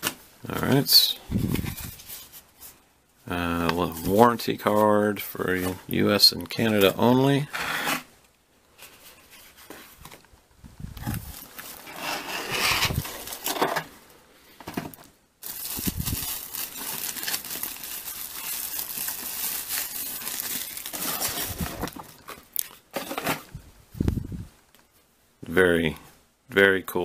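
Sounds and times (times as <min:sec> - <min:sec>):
packaging rustling and crinkling: 0:00.8 - 0:02.8, 0:11.0 - 0:13.9, 0:14.9 - 0:23.5.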